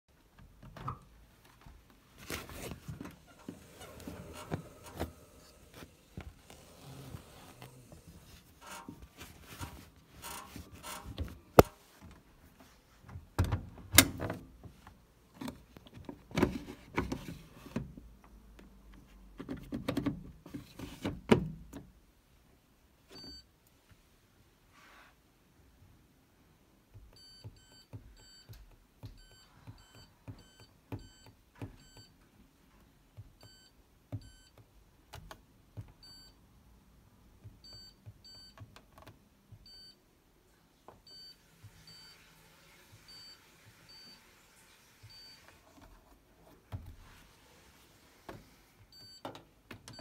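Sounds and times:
laundry rustling: 0:01.3 - 0:13.3
washing machine beep: 0:23.2 - 0:23.5, 0:27.2 - 0:28.5, 0:29.1 - 0:32.2, 0:33.4 - 0:34.6, 0:36.0 - 0:36.4, 0:37.6 - 0:38.6, 0:39.6 - 0:40.0, 0:41.0 - 0:45.5, 0:48.9 - 0:49.3.

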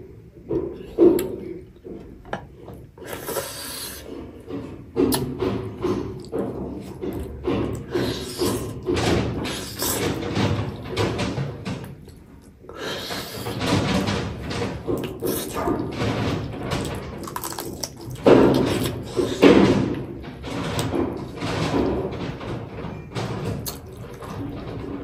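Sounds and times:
person chewing food: 0:17.2 - 0:19.4.

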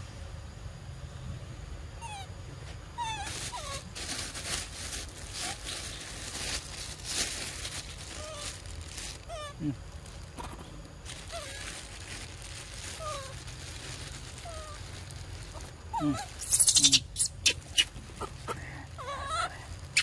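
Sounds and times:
macaques squeaking: 0:15.5 - 0:20.0.

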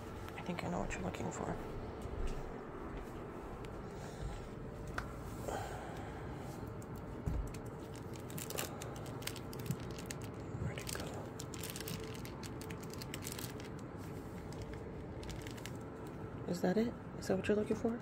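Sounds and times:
rustling and crinkling toys: 0:06.9 - 0:16.2.

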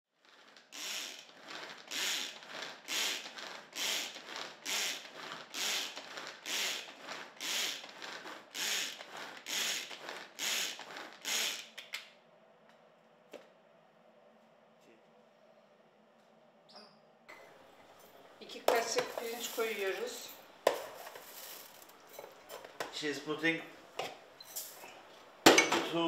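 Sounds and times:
manual food chopper whirring rattle: 0:00.1 - 0:11.9.

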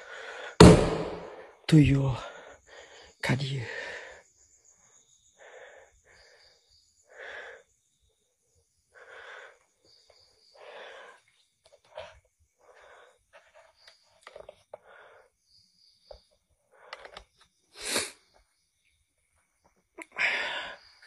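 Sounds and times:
person breathing: 0:00.0 - 0:01.6, 0:05.3 - 0:07.7, 0:08.9 - 0:09.7, 0:10.6 - 0:11.2, 0:20.2 - 0:21.0.

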